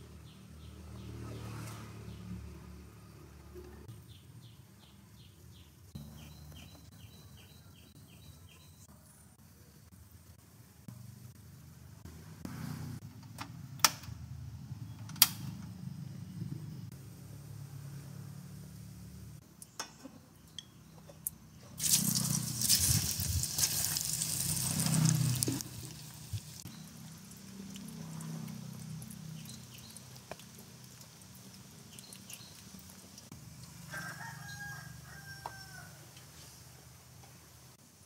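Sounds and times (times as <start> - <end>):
potatoes sizzling in hot oil: 21.8 - 27.5, 28.7 - 33.3
oil bubbling and popping: 21.8 - 33.3.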